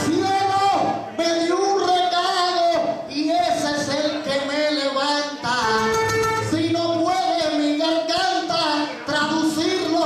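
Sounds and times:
man singing: 0:00.0 - 0:10.0
acoustic guitar: 0:05.4 - 0:07.0.

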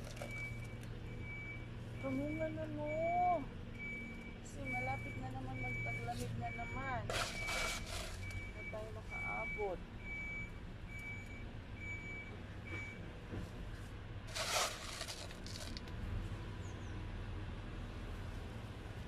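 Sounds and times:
reversing alarm beeping: 0:00.2 - 0:13.0.

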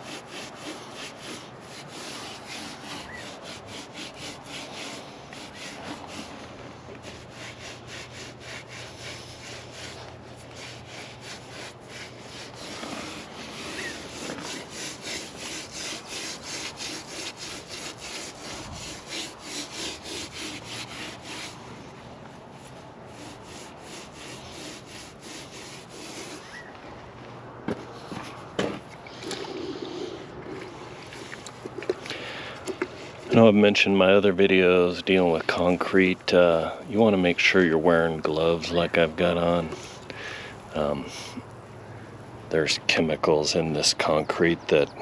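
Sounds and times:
sponge scrubbing mortar: 0:00.0 - 0:21.6, 0:22.6 - 0:26.6, 0:32.8 - 0:39.9.

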